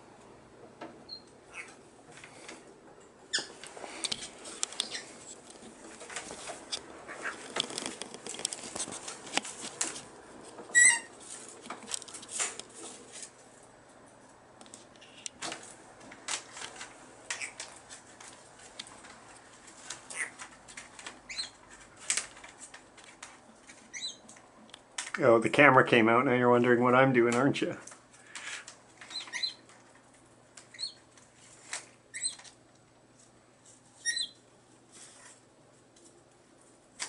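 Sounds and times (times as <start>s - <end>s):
parrot chirp: 1.1s - 1.8s, 3.3s - 3.6s, 10.7s - 11.1s, 21.3s - 21.6s, 23.9s - 24.2s, 29.1s - 29.6s, 30.7s - 31.0s, 32.1s - 32.4s, 34.0s - 34.4s
parrots picking at paper and straw: 3.3s - 25.2s, 27.8s - 37.0s.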